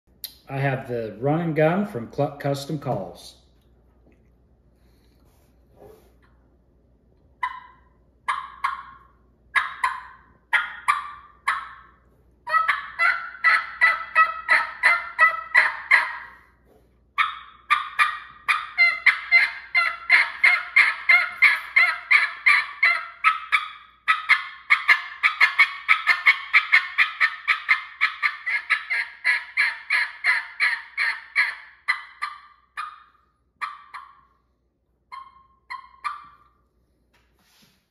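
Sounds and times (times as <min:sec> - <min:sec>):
raspy turkey yelps from mouth call: 0:07.4 - 0:16.4, 0:17.2 - 0:34.4, 0:35.1 - 0:36.5.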